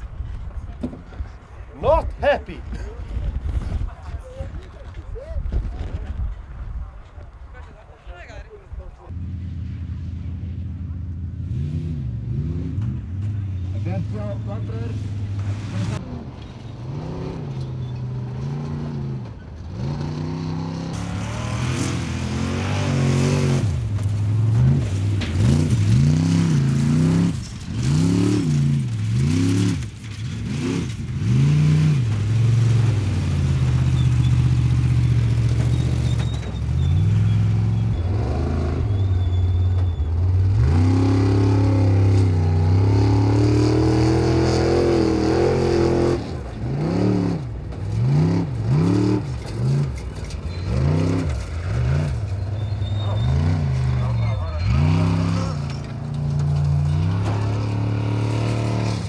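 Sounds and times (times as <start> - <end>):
buggy engine revving hard: 11.4 - 13.1, 16.8 - 59.0.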